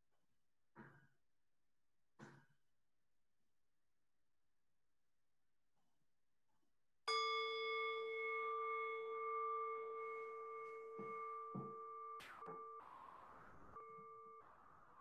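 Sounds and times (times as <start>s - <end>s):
metal singing bowl ringing: 7.1s - 12.8s.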